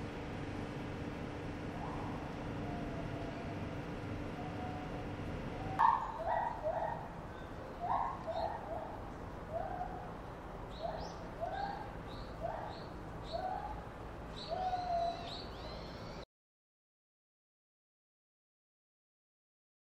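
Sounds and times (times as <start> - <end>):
chimpanzee hooting calls: 1.8 - 3.5, 14.5 - 15.3.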